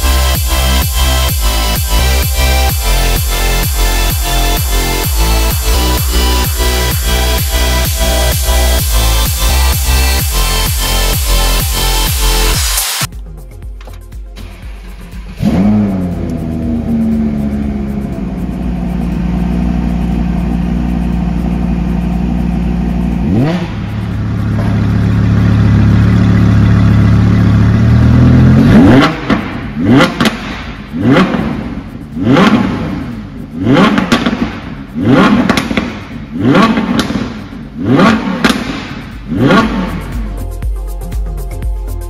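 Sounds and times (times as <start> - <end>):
sports car engine idling: 0.0 - 12.5, 13.1 - 42.0
engine revving sharply: 0.0 - 13.1, 14.4 - 40.4.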